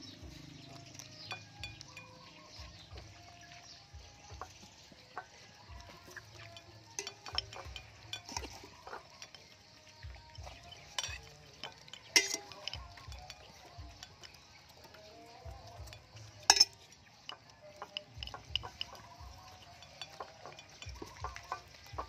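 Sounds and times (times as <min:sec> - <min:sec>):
animals pecking and chewing on a plate: 0:00.0 - 0:22.0
sharp clack on a dish: 0:06.4 - 0:09.6, 0:10.8 - 0:14.4, 0:16.4 - 0:19.1.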